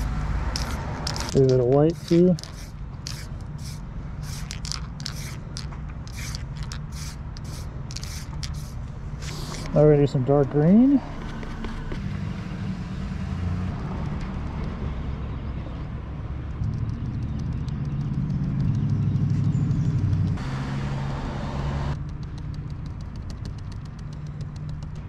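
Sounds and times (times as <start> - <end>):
vehicle engine humming: 0.0 - 25.0
short hiss: 2.0 - 9.8
light rapid ticking: 16.4 - 20.4, 22.0 - 25.0.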